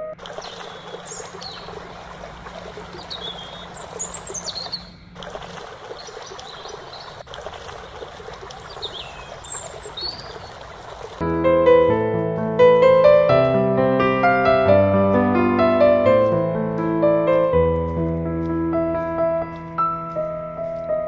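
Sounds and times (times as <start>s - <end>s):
trickling water: 0.0s - 11.2s.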